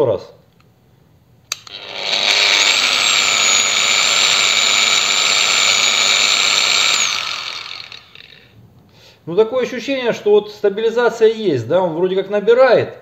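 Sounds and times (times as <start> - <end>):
angle grinder whining: 1.5 - 8.5.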